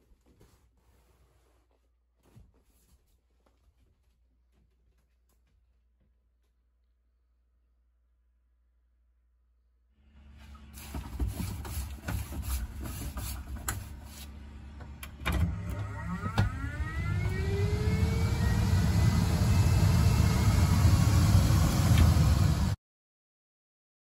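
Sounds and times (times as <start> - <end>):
fan motor whine: 10.0 - 22.8.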